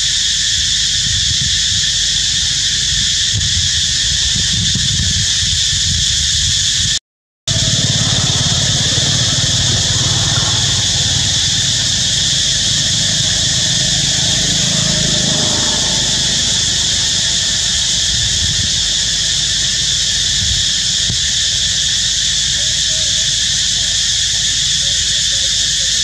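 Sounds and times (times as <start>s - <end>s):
low engine rumble: 7.5s - 25.1s
insects buzzing: 7.5s - 26.0s.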